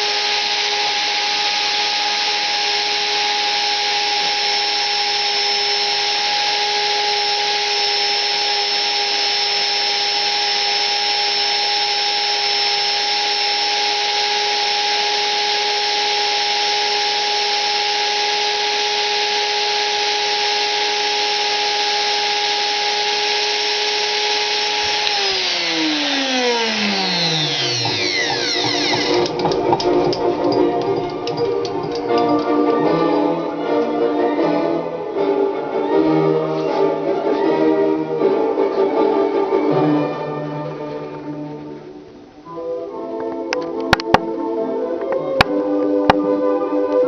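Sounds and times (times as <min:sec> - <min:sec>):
rotary cutter whining: 0:00.0 - 0:34.0.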